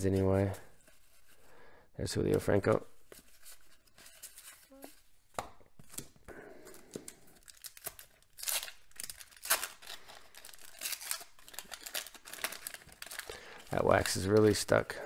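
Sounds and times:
paper crinkling and rustling: 3.0 - 5.1, 6.9 - 14.9
waxed paper wrapper tearing: 7.4 - 14.8.

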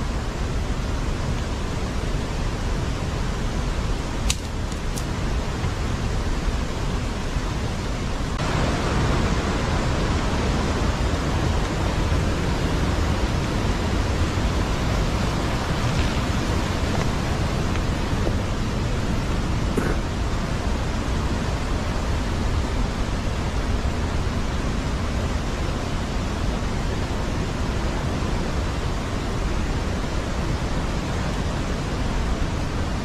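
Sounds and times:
river rushing over rocks: 0.0 - 33.0
sharp clicks: 4.2 - 5.1.

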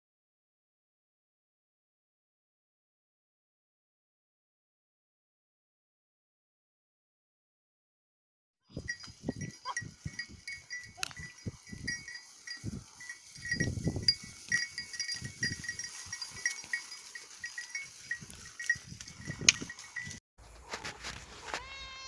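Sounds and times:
sheep bells jingling: 8.7 - 20.2.

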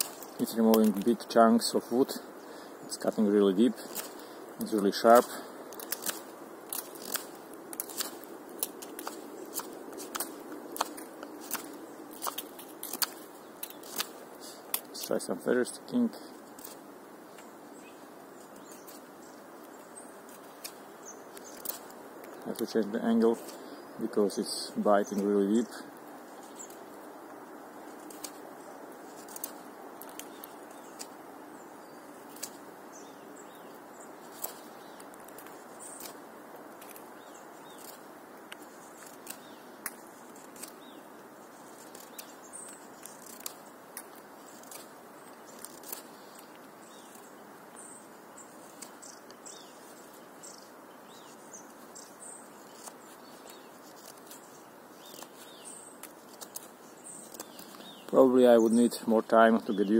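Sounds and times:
faint steady hiss: 0.0 - 59.9
knife shaving wooden stick: 3.7 - 15.2, 27.7 - 31.2, 33.5 - 47.2, 48.0 - 58.2.

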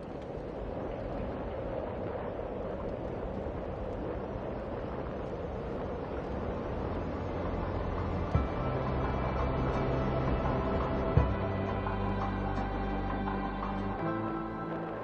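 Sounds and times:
bicycle tyres rolling on pavement: 0.0 - 11.5
wind on microphone: 0.0 - 14.1.

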